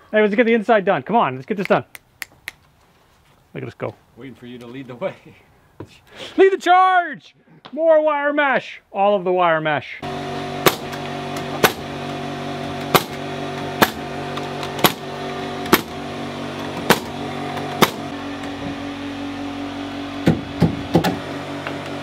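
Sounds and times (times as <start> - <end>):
hammer striking nails: 10.6 - 11.9, 12.7 - 16.0, 16.7 - 18.1.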